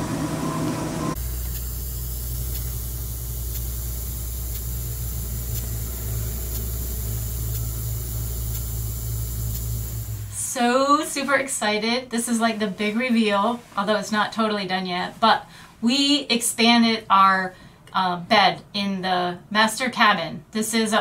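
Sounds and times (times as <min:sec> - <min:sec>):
speaker low hum: 0:00.0 - 0:10.7
hiss: 0:01.1 - 0:10.5.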